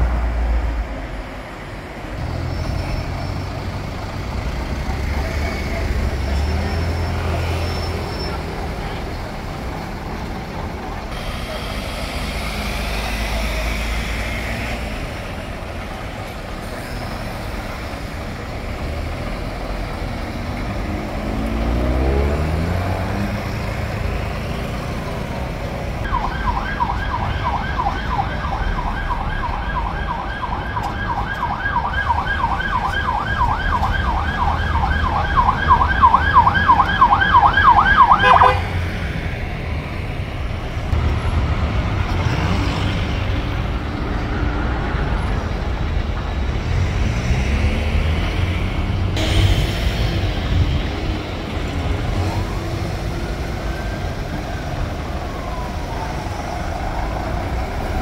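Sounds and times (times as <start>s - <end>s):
road traffic noise: 0.0s - 58.0s
passing vehicle engine: 2.2s - 58.0s
siren yelping: 26.0s - 38.8s, 52.3s - 58.0s.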